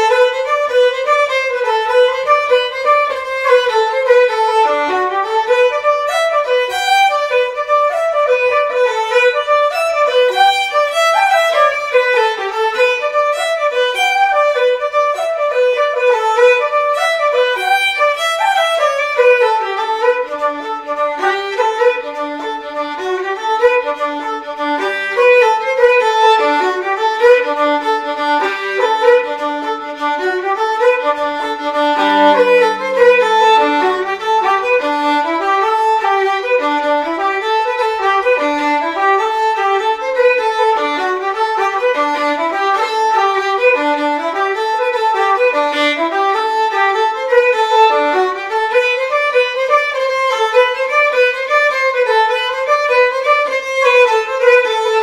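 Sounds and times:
fiddle playing: 0.0 - 55.0
flute playing: 0.0 - 55.0.

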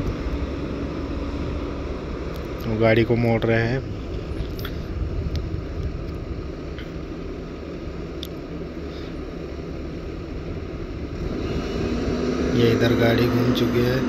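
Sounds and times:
heavy machinery diesel engines rumbling: 0.0 - 14.0.

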